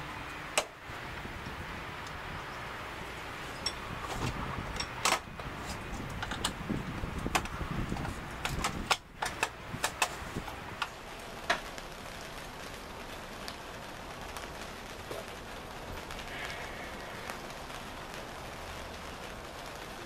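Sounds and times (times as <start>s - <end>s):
steady background hiss: 0.0s - 20.0s
metallic clicks and knocks: 4.7s - 6.6s, 7.2s - 10.2s.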